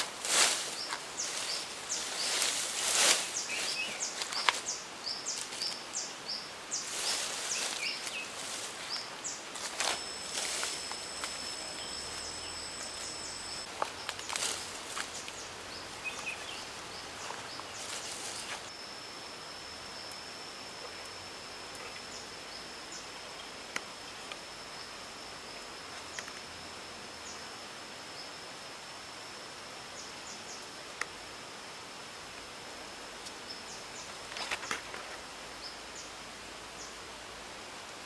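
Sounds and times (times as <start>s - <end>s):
footsteps in undergrowth: 0.0s - 5.8s, 6.8s - 18.7s
high steady whine: 0.0s - 38.0s
bird chirps: 0.7s - 18.6s.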